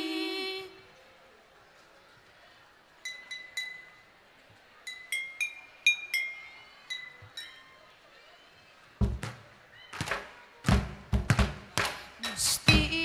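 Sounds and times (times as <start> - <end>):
glass bottles tapped in a tune: 4.9 - 7.7.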